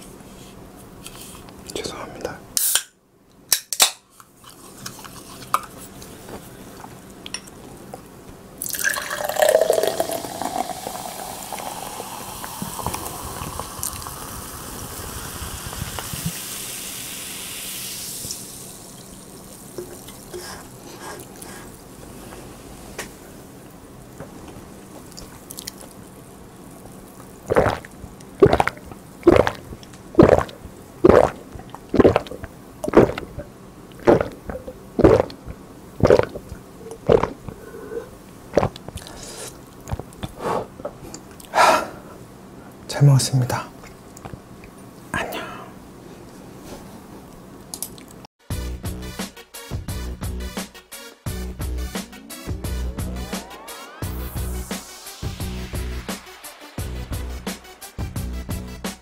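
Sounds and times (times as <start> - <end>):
person gulping: 8.6 - 14.4, 25.0 - 26.0, 27.2 - 41.6
soda pouring into a glass: 8.6 - 20.8, 25.4 - 31.4, 32.0 - 35.4
carbonation fizzing: 8.6 - 22.7, 24.8 - 37.6.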